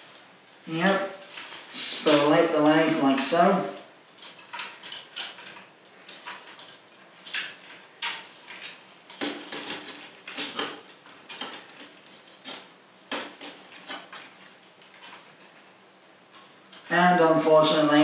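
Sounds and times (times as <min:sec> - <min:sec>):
plastic toy parts clicking: 0:04.2 - 0:14.3.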